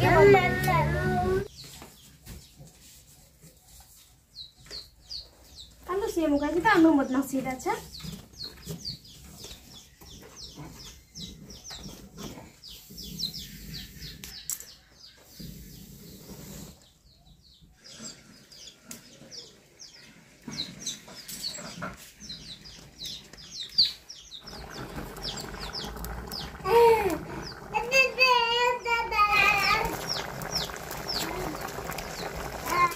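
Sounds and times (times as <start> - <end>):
chicks peeping: 4.3 - 5.9, 7.8 - 28.3, 29.2 - 32.9.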